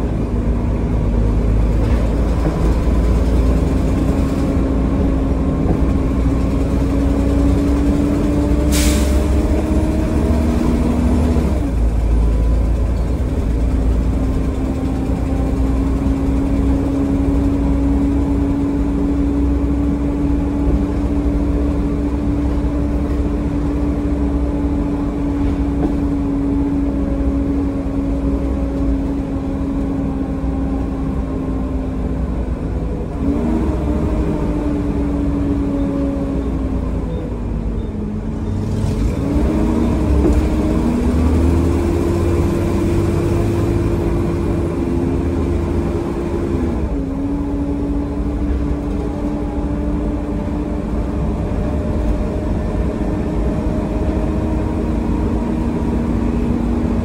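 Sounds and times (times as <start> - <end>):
bus engine rumble with whine: 0.0 - 57.0
short air hiss: 8.7 - 9.2.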